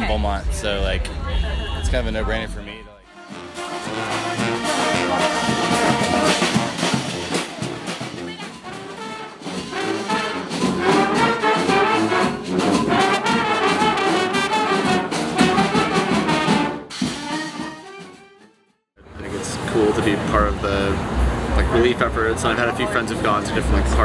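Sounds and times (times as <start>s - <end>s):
brass marching band playing: 3.0s - 18.7s.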